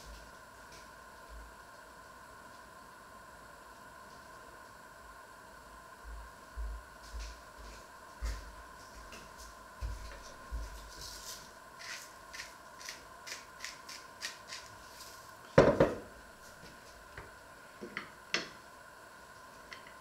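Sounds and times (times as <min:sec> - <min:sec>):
knife scraping cutting board: 0:11.1 - 0:15.1.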